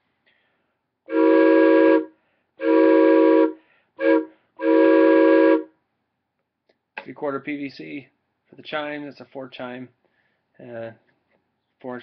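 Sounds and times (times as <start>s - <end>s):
train whistle blasts: 1.1s - 5.7s.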